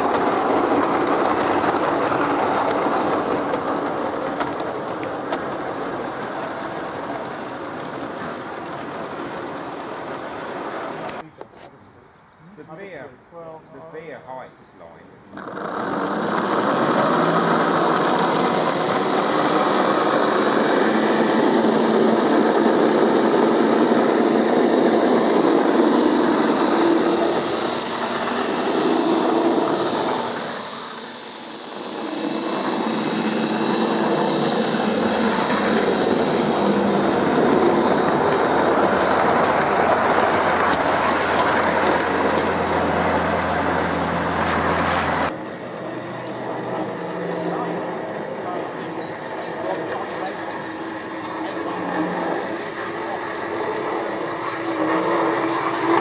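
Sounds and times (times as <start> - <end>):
model train rolling on rails: 0.0 - 11.2, 15.3 - 56.0.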